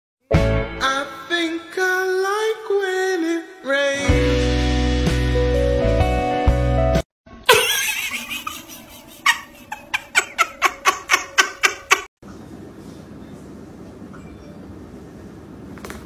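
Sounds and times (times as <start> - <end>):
background music: 3.9 - 9.0
person laughing: 7.5 - 12.1.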